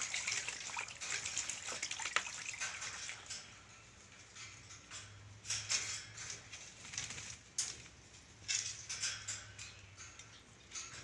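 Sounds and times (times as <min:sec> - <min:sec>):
bird splashing in water: 0:00.0 - 0:03.5.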